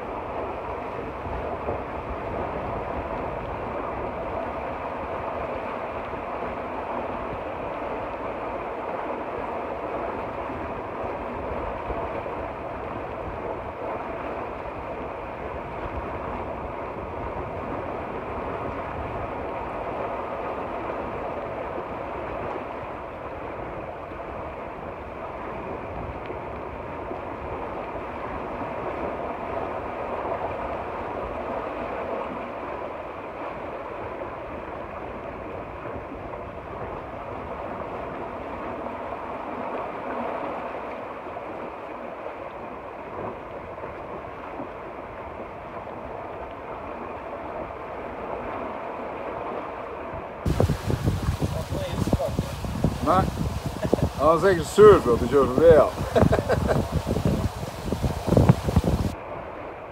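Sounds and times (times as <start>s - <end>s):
water rushing along hull: 0.0s - 59.9s
wind: 0.0s - 59.9s.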